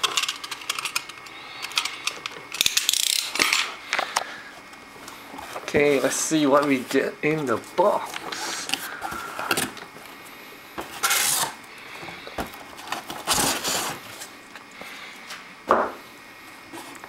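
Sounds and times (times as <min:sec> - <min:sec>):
cardboard and plastic rustling: 0:03.4 - 0:10.2, 0:10.8 - 0:14.7.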